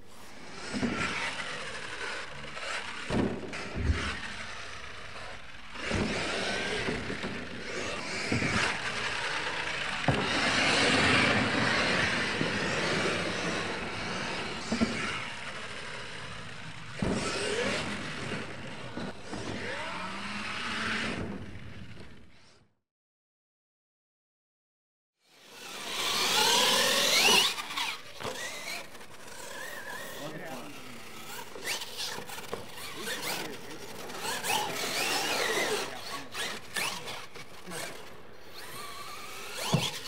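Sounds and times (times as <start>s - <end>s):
rc truck motor whining: 0.0s - 22.6s, 25.3s - 40.0s
sharp knocks from landings: 16.8s - 19.6s, 25.6s - 40.0s.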